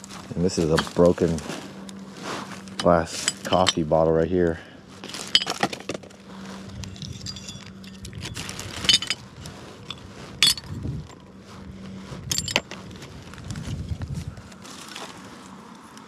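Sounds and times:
plastic bag crinkling: 5.0s - 5.7s, 8.0s - 9.2s
broken glass clinking: 7.1s - 8.0s.

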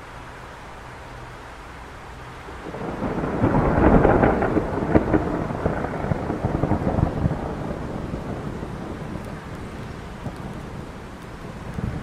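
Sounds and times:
steady rain: 0.0s - 12.0s
thunder crackling and rumbling: 2.5s - 12.0s.

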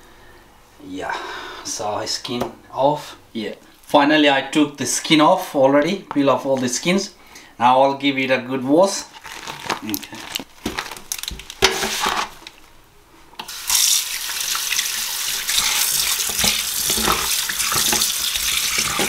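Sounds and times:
tap water running into sink: 13.5s - 19.0s.

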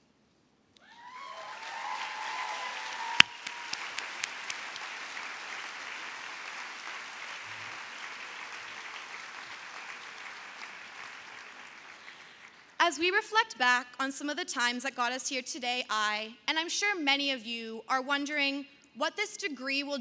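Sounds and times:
large audience applauding: 0.9s - 12.8s.

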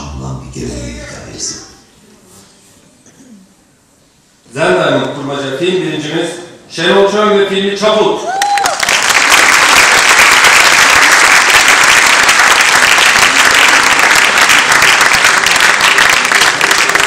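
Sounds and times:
audience applauding: 8.3s - 17.0s.

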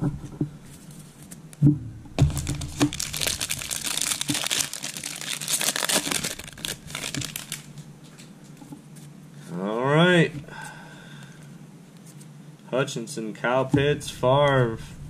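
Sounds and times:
plastic wrapper tearing and crinkling: 2.2s - 7.9s.

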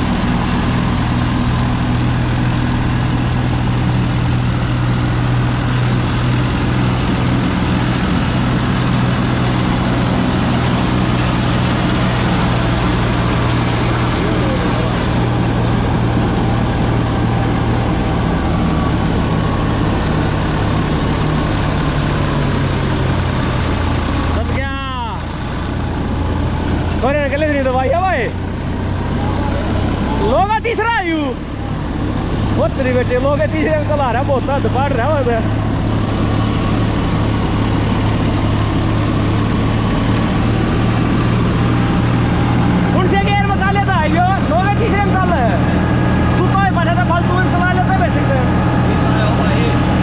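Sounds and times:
tractor diesel engine running: 0.0s - 50.0s.

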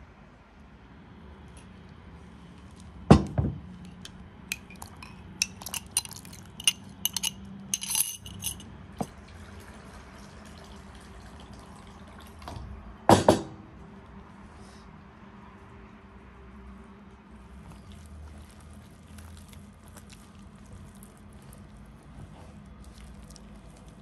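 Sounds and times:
glass and utensils clinking: 3.8s - 8.6s
knock: 13.1s - 13.5s.

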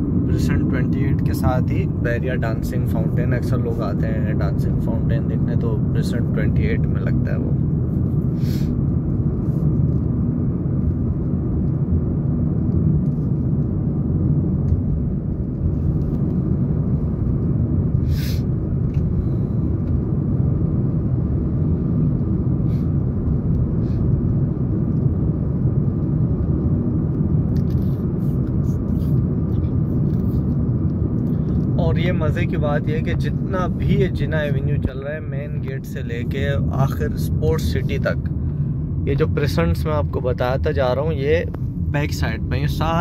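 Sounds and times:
car road and engine rumble: 0.0s - 43.0s.

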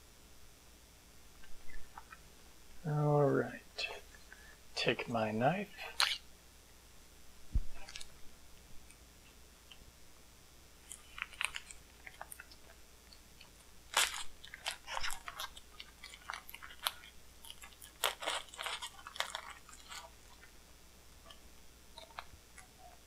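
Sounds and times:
plastic wrapping crinkling: 10.8s - 12.8s, 13.4s - 20.5s.

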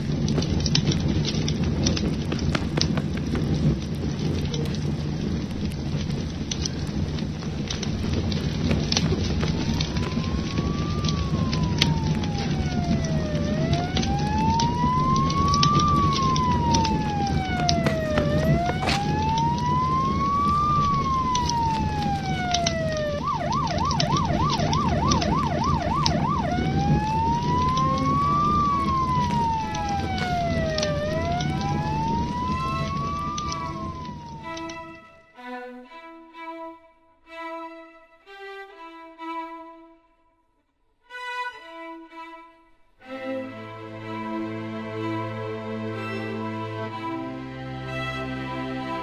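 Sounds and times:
low rushing noise: 0.0s - 36.0s
emergency siren wailing: 3.6s - 35.5s, 43.2s - 49.0s.

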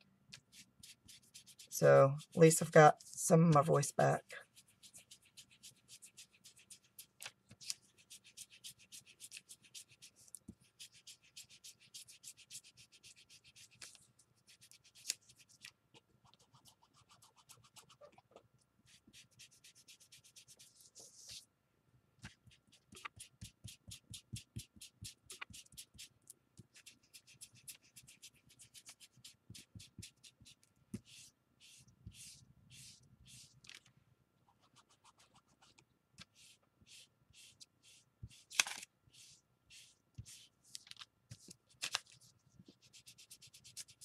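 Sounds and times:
scratching on paper page: 0.4s - 21.4s, 22.2s - 33.8s, 34.5s - 44.0s.

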